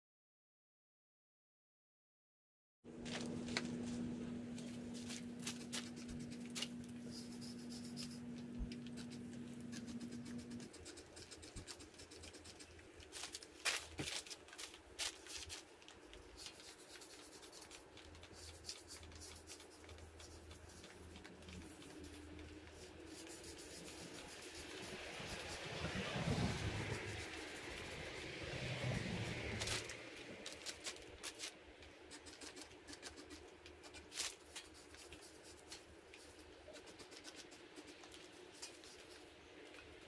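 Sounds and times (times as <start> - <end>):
low steady hum: 2.9 - 40.0
brush scrubbing metal: 4.6 - 13.6, 16.3 - 39.3.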